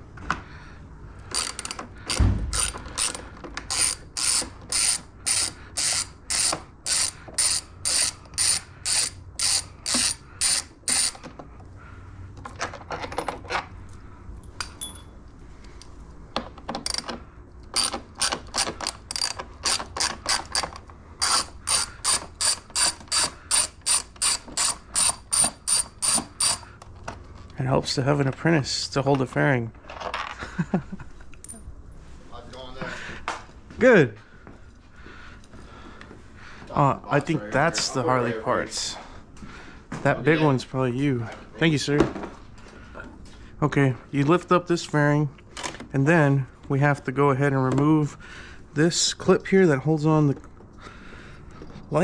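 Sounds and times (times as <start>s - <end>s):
hand ratchet clicking: 1.2s - 11.3s, 16.8s - 26.8s
low thump: 2.2s - 2.6s.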